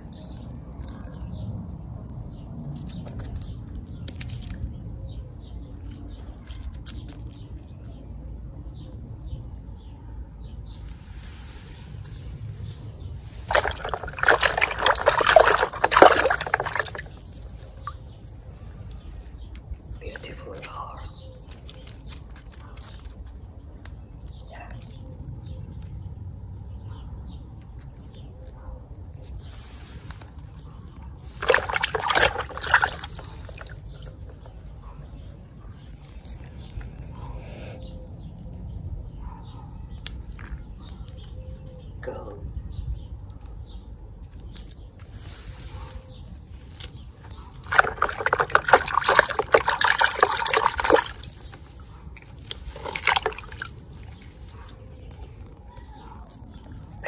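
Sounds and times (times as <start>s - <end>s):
toy splashing in muddy water: 13.3s - 18.2s, 31.3s - 34.5s, 47.6s - 54.5s.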